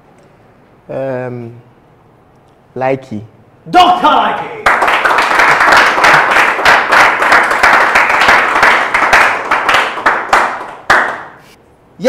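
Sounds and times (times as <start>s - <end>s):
hands clapping: 4.0s - 11.4s.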